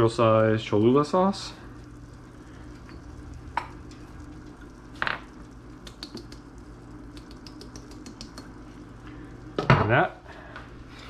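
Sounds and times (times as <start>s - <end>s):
low hum: 0.8s - 9.6s.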